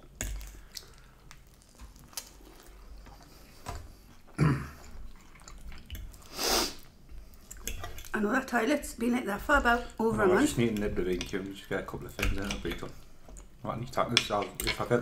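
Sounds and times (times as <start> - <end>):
quiet chewing: 0.0 - 8.2
cutlery clicking on plates: 12.1 - 12.9, 14.0 - 15.0.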